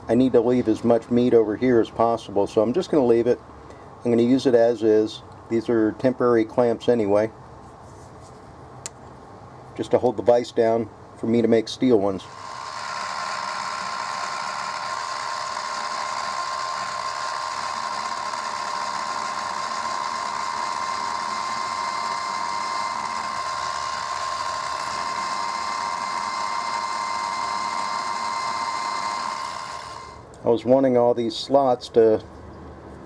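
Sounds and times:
end mill cutting metal: 0:12.2 - 0:30.2
mill motor whine: 0:12.2 - 0:30.3.

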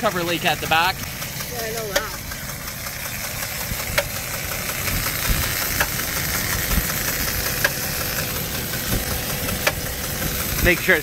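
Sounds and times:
car engine idling: 0:00.0 - 0:11.0
sharp engine tap: 0:07.6 - 0:07.8, 0:08.8 - 0:10.4.

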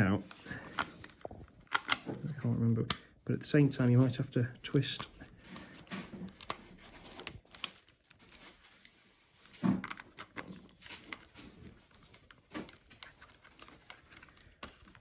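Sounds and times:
key and lock clicking: 0:01.6 - 0:02.1.

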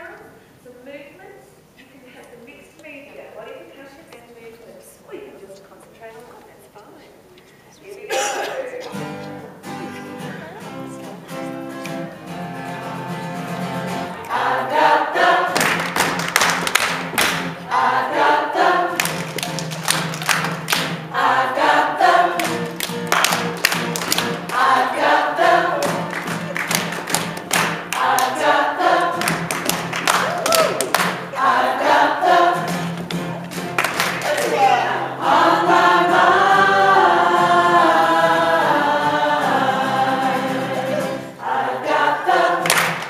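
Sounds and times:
hands clapping: 0:11.8 - 0:12.1, 0:15.6 - 0:17.6, 0:18.9 - 0:21.0, 0:22.4 - 0:24.7, 0:25.8 - 0:28.5, 0:29.2 - 0:31.3, 0:32.7 - 0:34.7, 0:42.6 - 0:43.0
group singing blues song: 0:13.9 - 0:16.2, 0:17.3 - 0:19.5, 0:20.9 - 0:33.4, 0:34.1 - 0:43.0.

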